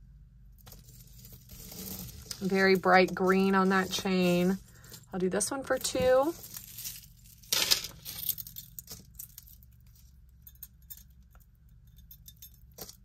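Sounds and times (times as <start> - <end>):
jewelry chain clinking: 5.7 - 13.0.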